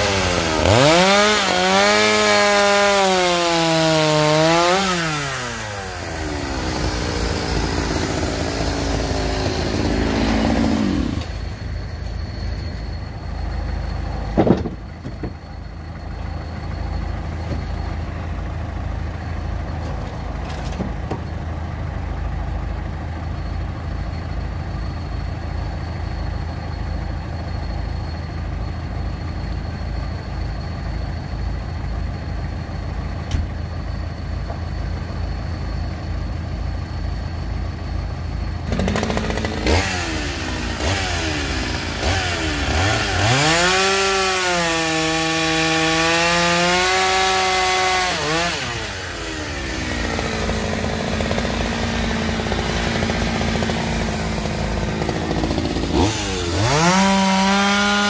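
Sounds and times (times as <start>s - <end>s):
chainsaw cutting log: 0.0s - 11.4s, 38.7s - 58.0s
tractor diesel engine idling: 5.2s - 43.5s, 47.5s - 57.3s.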